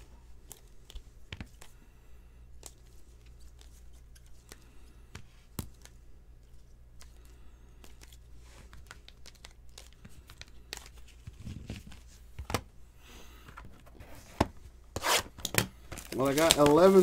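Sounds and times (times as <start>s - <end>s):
cards clicking and tapping: 0.4s - 1.8s, 2.6s - 12.7s, 15.4s - 17.0s.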